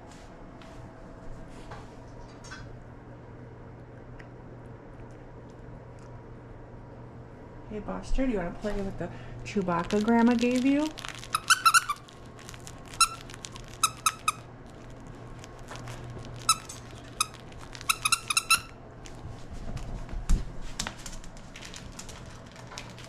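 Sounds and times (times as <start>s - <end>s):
dog toy squeaking: 11.0s - 14.4s, 16.3s - 18.8s.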